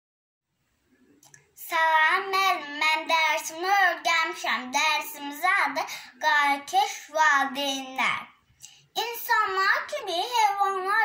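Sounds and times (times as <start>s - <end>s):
girl singing: 1.6s - 8.2s, 9.0s - 11.0s.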